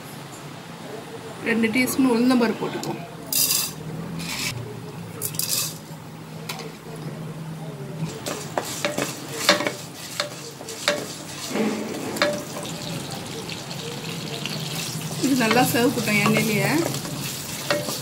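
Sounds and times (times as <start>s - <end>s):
lentils sizzling in oil: 3.3s - 4.5s, 5.2s - 5.9s, 8.1s - 18.0s
wooden spatula scraping pan: 8.2s - 13.1s.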